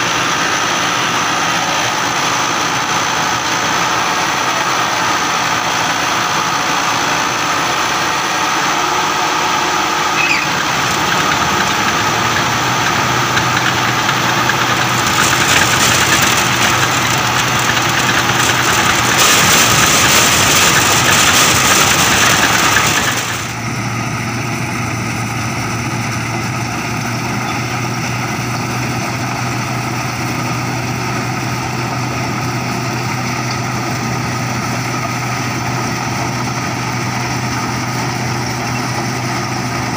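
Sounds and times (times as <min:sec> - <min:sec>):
combine harvester running: 0:00.0 - 0:39.9.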